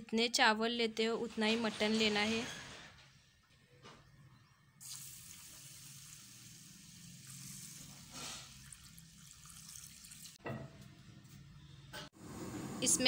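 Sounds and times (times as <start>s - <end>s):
water pouring onto rice: 4.8s - 10.4s.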